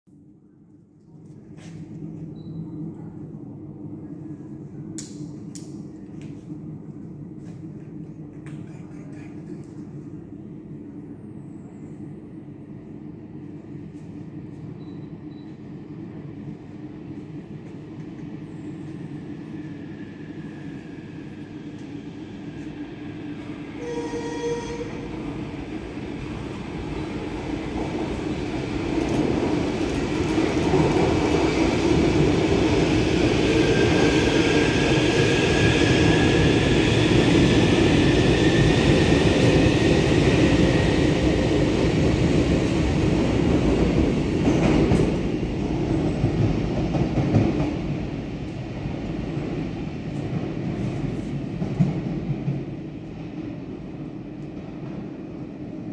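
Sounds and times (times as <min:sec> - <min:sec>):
metro train passing: 0:00.2 - 0:55.9
train whine: 0:01.6 - 0:55.9.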